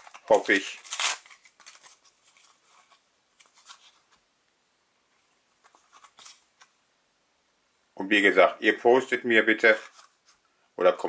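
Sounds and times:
paper stickers rustling: 0.0s - 4.1s.

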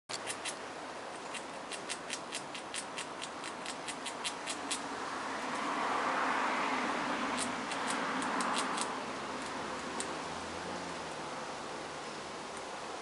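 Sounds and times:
squirrel gnawing clicks: 0.1s - 4.9s, 7.3s - 10.2s
broad rush of noise: 0.2s - 13.0s.

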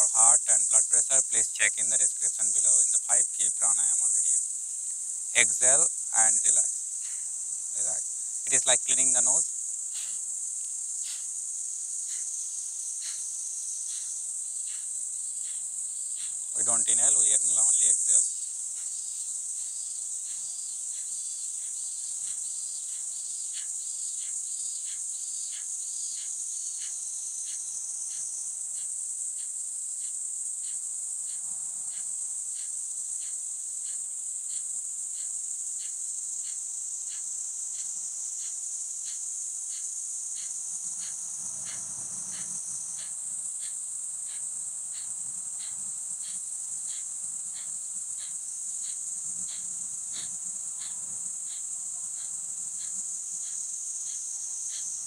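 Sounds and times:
insects droning: 0.0s - 55.0s
forceful breaths through nose: 9.9s - 10.3s, 11.0s - 11.4s.

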